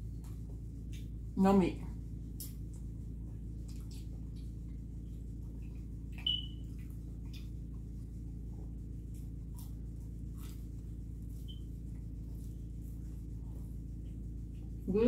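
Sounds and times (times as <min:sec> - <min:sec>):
low hum: 0:00.0 - 0:15.0
faint chewing: 0:02.3 - 0:14.9
short high-pitched chirp: 0:06.2 - 0:06.6.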